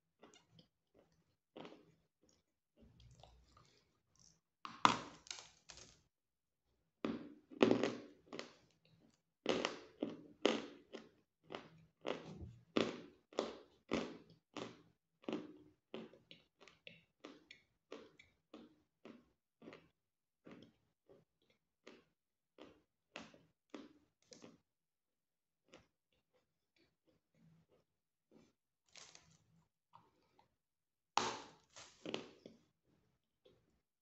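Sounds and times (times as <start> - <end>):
croutons crunching while chewed: 28.4 - 29.6, 31.2 - 32.6.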